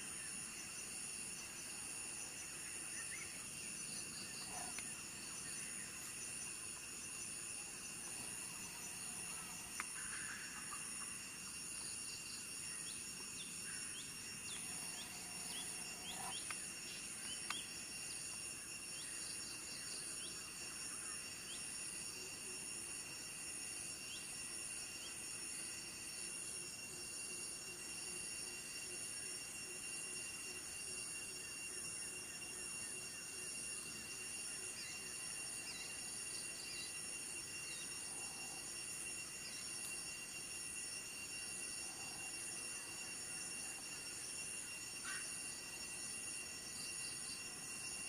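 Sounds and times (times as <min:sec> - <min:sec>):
insects buzzing: 0:00.0 - 0:48.0.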